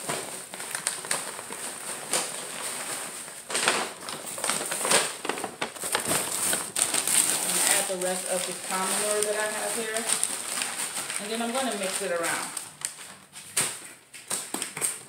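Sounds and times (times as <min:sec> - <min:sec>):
paper bag rustling and crackling: 0:00.0 - 0:15.0
plastic bag crinkling: 0:00.0 - 0:15.0
peat moss pouring into bucket: 0:06.7 - 0:12.6.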